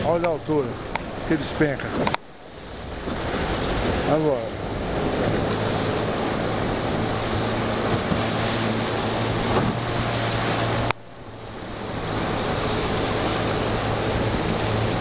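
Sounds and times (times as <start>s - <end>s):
low engine drone: 0.0s - 15.0s
rushing water: 0.0s - 15.0s
wind: 0.0s - 15.0s.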